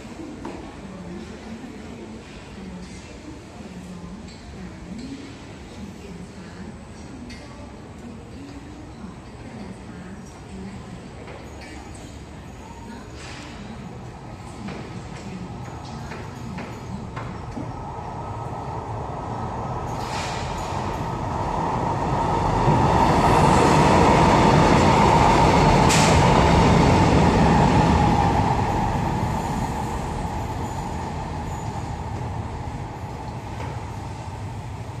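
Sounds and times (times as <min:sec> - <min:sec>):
electric train passing: 0:17.8 - 0:35.0.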